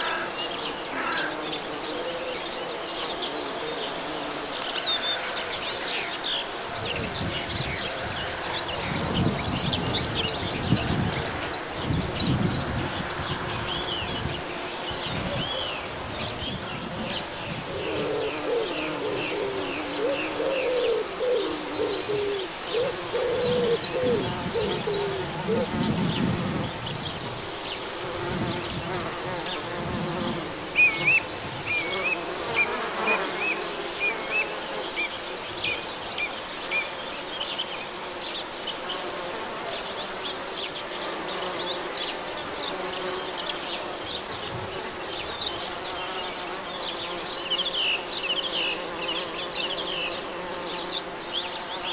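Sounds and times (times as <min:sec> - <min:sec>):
birds chirping: 0:00.0 - 0:37.0
bees buzzing: 0:00.0 - 0:51.9.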